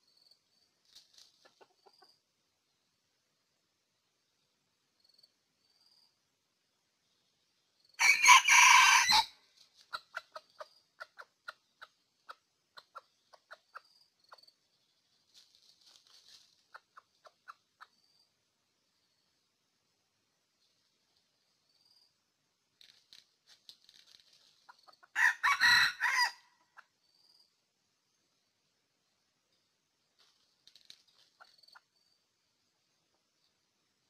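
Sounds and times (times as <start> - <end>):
rooster crowing: 8.0 - 9.4, 25.1 - 26.5
quick clucks: 9.8 - 14.5.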